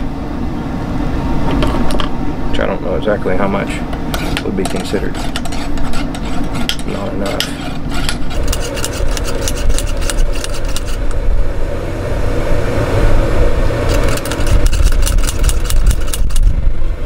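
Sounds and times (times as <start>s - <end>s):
low rumble: 7.8s - 17.0s.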